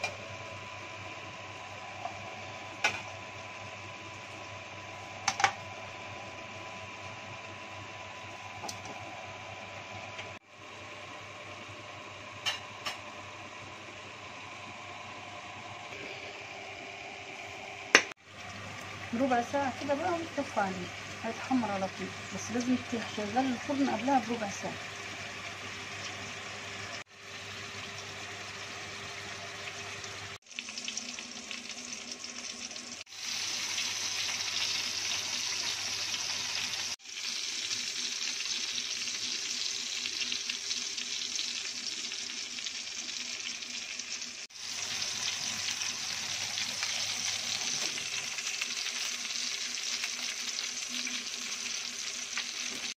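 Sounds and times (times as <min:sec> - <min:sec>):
fat sizzling in a roasting tray: 0:19.2 - 0:53.0.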